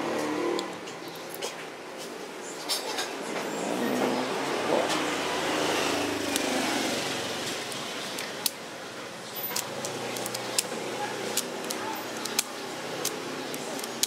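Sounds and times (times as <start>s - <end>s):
road vehicle passing: 3.3s - 14.0s.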